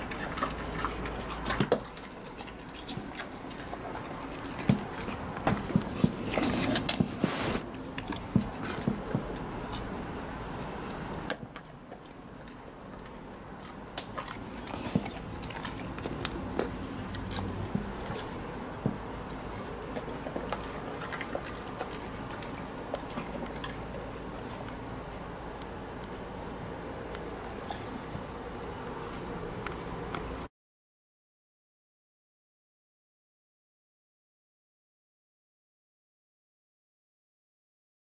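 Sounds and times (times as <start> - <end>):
dog chewing and snuffling: 0.0 - 26.2, 27.0 - 30.5.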